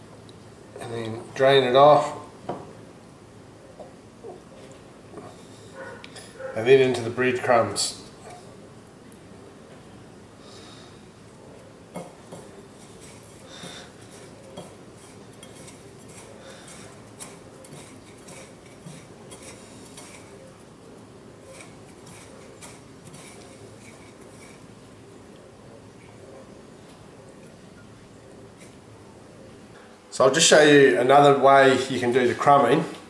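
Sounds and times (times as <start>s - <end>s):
low room hum: 0.0s - 33.0s
light clicks and taps on bowls: 11.9s - 13.2s, 14.1s - 20.3s.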